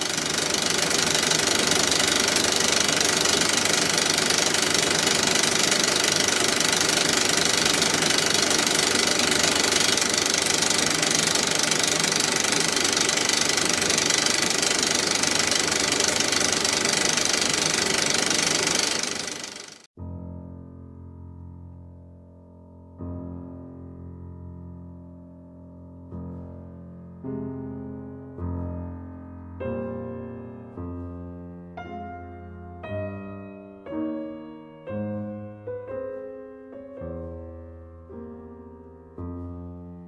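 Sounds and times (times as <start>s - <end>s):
film projector running: 0.0s - 19.9s.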